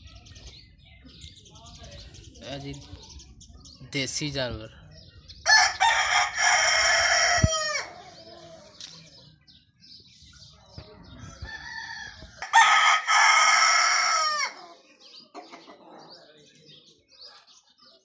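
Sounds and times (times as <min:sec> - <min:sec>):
rooster crowing: 0:05.5 - 0:08.0, 0:11.4 - 0:14.6.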